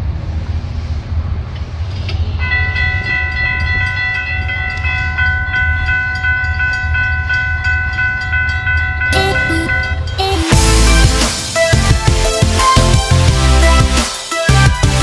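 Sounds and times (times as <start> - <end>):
crossing warning bell ringing: 2.4 - 11.8.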